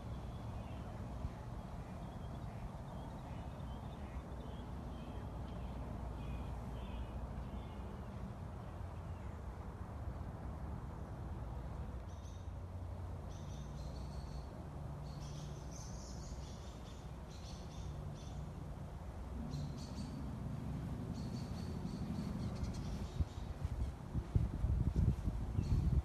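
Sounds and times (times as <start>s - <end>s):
songbirds chirping: 0.0s - 10.3s, 11.8s - 26.0s
steady low rumble: 18.6s - 26.0s.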